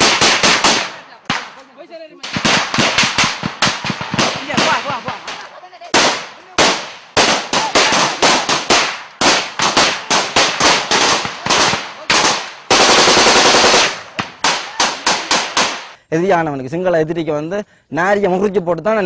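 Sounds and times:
gunfire shots and bursts: 0.0s - 1.6s, 2.2s - 16.0s.

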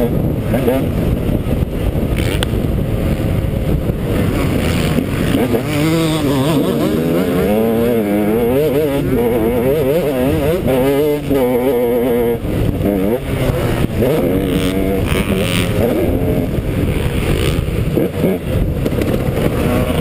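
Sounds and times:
motocross bike engine revving: 0.0s - 20.0s.

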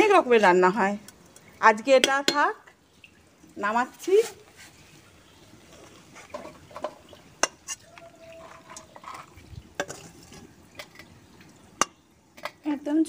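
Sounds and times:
metal spatula scraping a wok: 5.7s - 7.8s, 8.4s - 11.1s.

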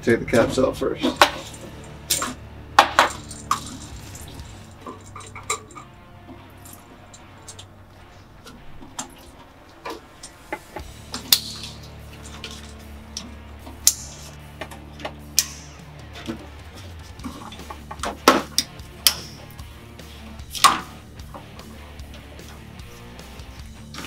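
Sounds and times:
hose connectors clicking: 1.0s - 7.7s, 8.4s - 19.7s.

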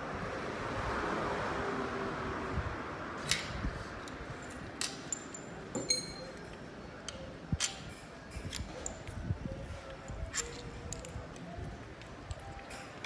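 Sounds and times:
metal tools clinking on gearbox: 4.0s - 9.2s, 10.0s - 11.4s.

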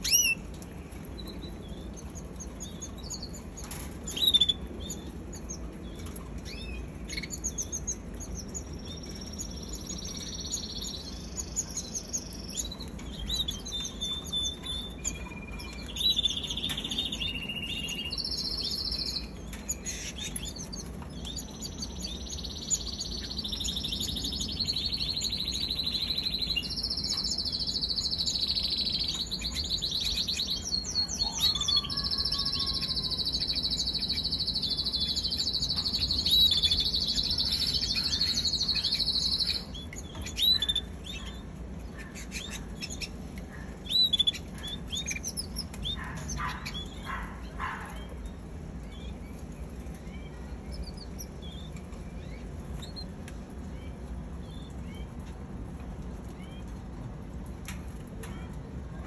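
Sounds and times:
canary singing trills: 0.0s - 53.1s.

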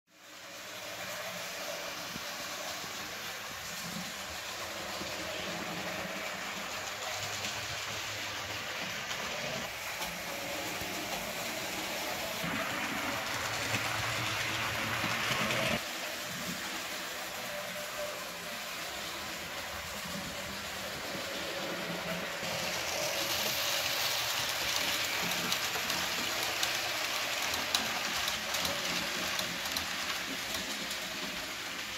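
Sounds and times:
model train running on track: 0.1s - 31.9s.

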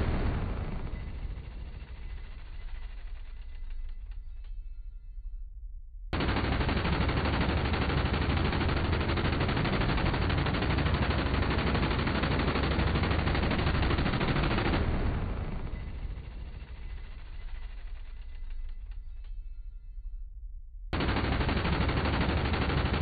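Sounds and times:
minigun firing: 6.2s - 18.0s, 21.0s - 23.0s.

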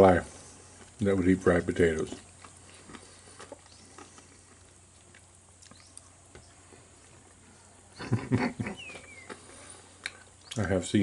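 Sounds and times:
cat chewing food: 2.0s - 7.4s.

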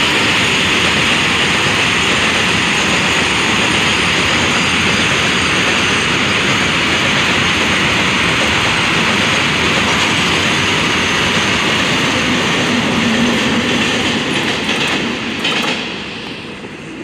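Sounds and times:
freight train wheels rumbling on rails: 0.0s - 17.0s.

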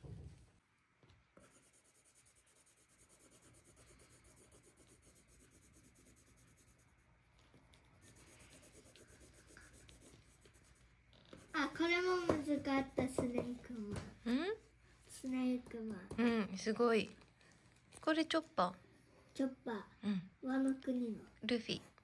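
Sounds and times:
pencil scratching on paper: 1.4s - 7.2s, 7.8s - 12.2s.

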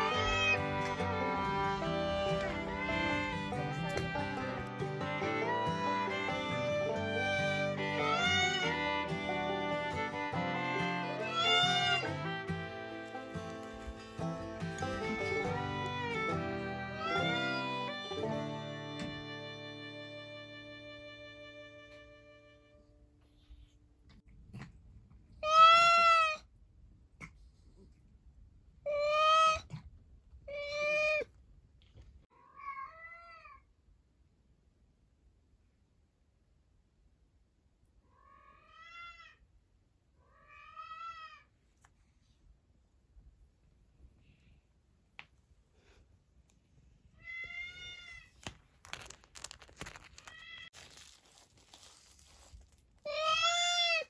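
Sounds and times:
cat meowing: 0.0s - 4.3s, 8.0s - 8.9s, 11.2s - 12.1s, 25.4s - 26.4s, 28.9s - 29.8s, 30.5s - 31.3s, 32.3s - 33.7s, 38.1s - 39.4s, 40.2s - 41.5s, 47.2s - 48.4s, 53.1s - 54.0s
rustling: 12.7s - 16.3s, 46.6s - 53.8s.

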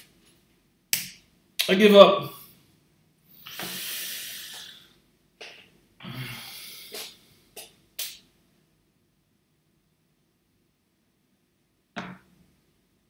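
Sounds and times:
man exhaling heavily: 3.4s - 4.9s, 6.0s - 7.2s.

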